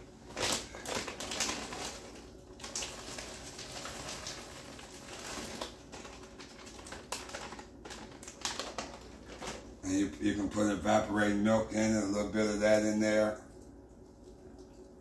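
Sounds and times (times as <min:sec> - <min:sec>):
plastic bag crinkling: 0:00.1 - 0:10.6.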